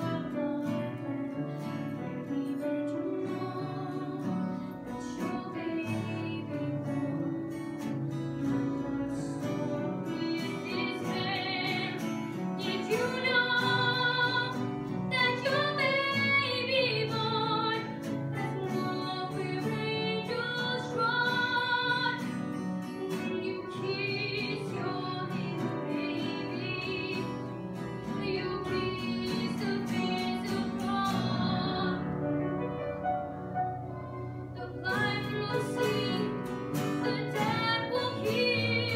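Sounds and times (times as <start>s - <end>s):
instrumental accompaniment: 0.0s - 38.9s
young women singing a hymn: 8.8s - 22.3s, 23.0s - 32.2s, 34.6s - 38.9s.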